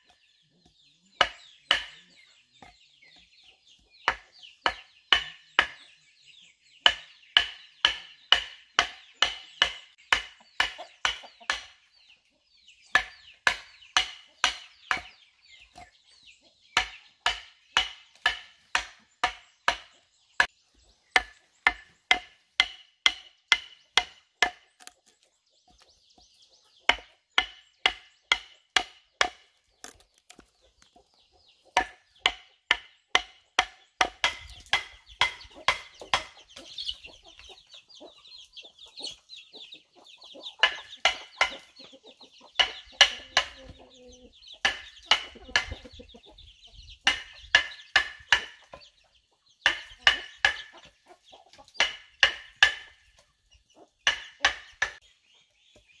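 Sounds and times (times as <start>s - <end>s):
machete chopping wooden block: 1.2s - 2.1s, 4.1s - 5.8s, 6.9s - 11.8s, 13.0s - 15.9s, 16.8s - 20.5s, 21.2s - 25.2s, 26.9s - 30.6s, 31.8s - 36.9s, 40.6s - 41.7s, 42.6s - 43.8s, 44.6s - 45.9s, 47.0s - 48.8s, 49.6s - 50.9s, 51.7s - 53.1s, 54.1s - 55.0s.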